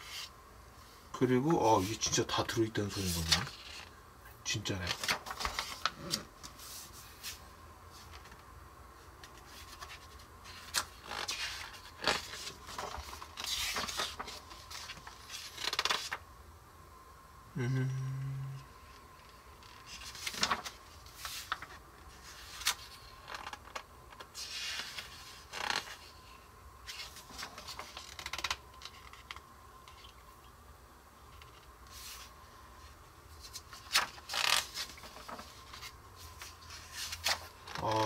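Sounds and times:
paper pages turning and rustling: 0:01.8 - 0:03.9, 0:04.8 - 0:08.4, 0:09.2 - 0:16.2, 0:19.6 - 0:30.2, 0:31.3 - 0:38.0.

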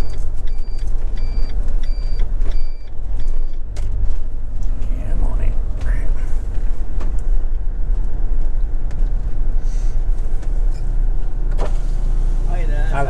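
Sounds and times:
motorhome engine rumble: 0:00.0 - 0:13.0.

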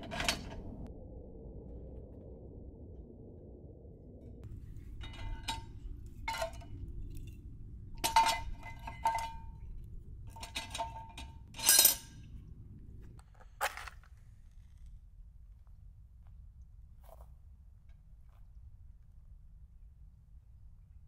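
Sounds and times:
wood clattering on steel stove: 0:04.7 - 0:12.1.

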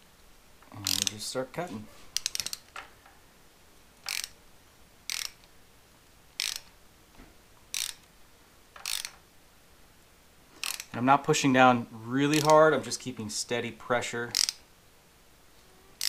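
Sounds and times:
hand ratchet clicking: 0:00.8 - 0:01.2, 0:02.2 - 0:02.8, 0:04.0 - 0:04.4, 0:05.1 - 0:05.5, 0:06.4 - 0:06.7, 0:07.7 - 0:08.1, 0:08.8 - 0:09.2, 0:10.6 - 0:11.0, 0:12.3 - 0:12.7, 0:14.3 - 0:14.6.

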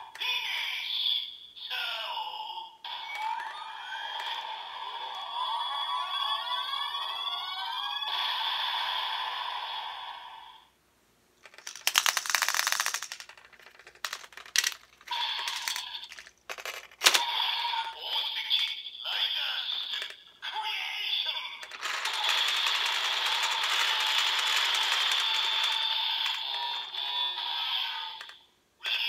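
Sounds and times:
toy electronic sound effect: 0:02.9 - 0:09.3, 0:14.0 - 0:16.3, 0:17.0 - 0:29.0
plastic rattling: 0:11.4 - 0:17.3, 0:19.8 - 0:20.3, 0:21.6 - 0:27.0.

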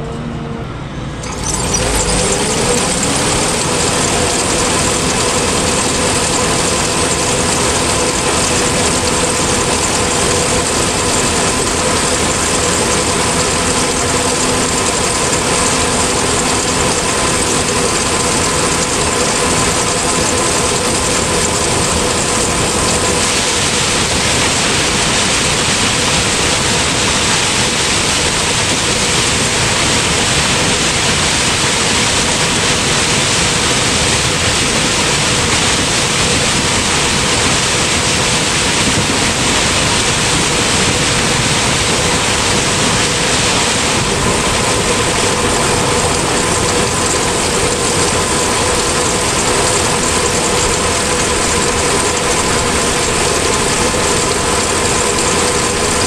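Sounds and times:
combine harvester machine noise: 0:00.0 - 0:56.0.

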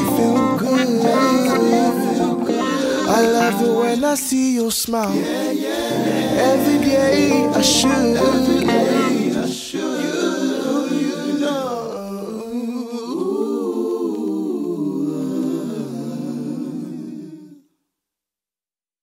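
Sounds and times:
a cappella vocal harmonies: 0:00.0 - 0:17.8
bass line: 0:05.9 - 0:09.5.

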